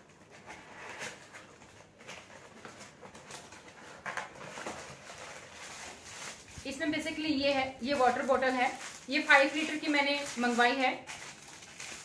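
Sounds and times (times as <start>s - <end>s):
paper and cardboard tearing: 0.2s - 6.6s.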